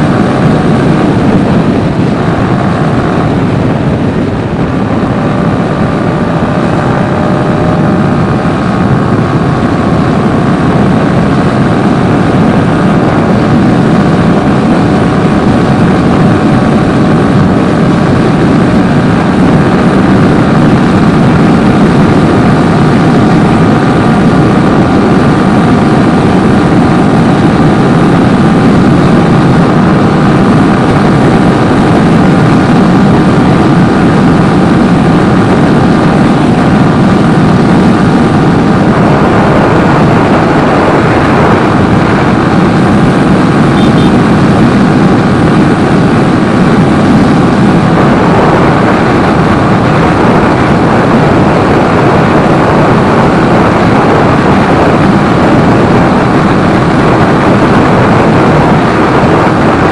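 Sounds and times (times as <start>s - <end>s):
motorcycle engine running: 0.0s - 59.9s
wind rushing over microphone: 0.0s - 59.9s.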